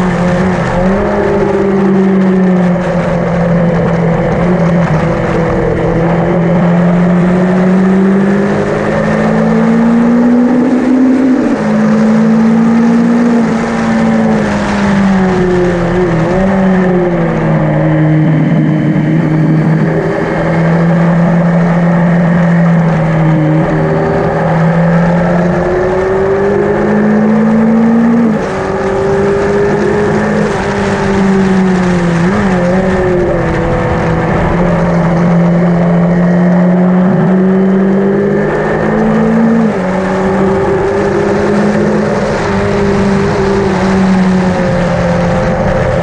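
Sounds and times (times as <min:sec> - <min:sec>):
motorcycle engine revving: 0:00.0 - 0:46.0.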